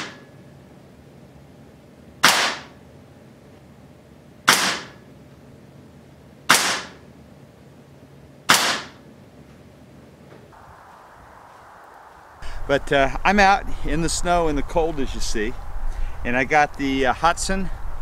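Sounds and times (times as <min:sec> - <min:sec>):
air rifle shots: 0:00.0 - 0:00.2, 0:02.2 - 0:02.8, 0:04.5 - 0:05.1, 0:06.5 - 0:07.0, 0:08.5 - 0:09.0.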